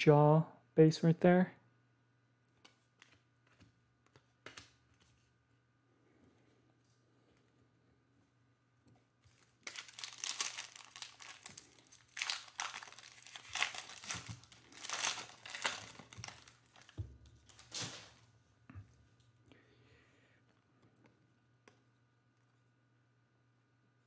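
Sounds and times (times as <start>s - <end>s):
foil wrapper tearing and crinkling: 9.3s - 18.3s.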